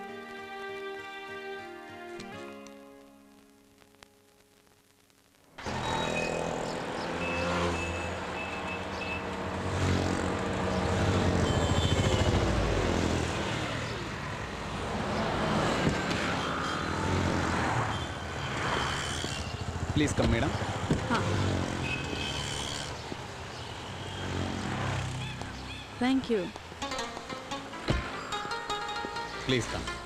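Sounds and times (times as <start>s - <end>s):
car engines passing by: 5.6s - 29.9s
motorcycle engine passing by: 5.7s - 14.0s, 15.2s - 26.0s.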